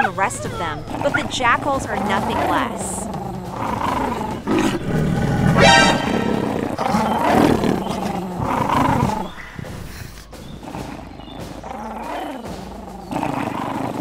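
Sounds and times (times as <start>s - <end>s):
background music: 0.0s - 14.0s
lioness growling and snarling: 0.0s - 14.0s
sharp high yelp: 5.6s - 6.3s.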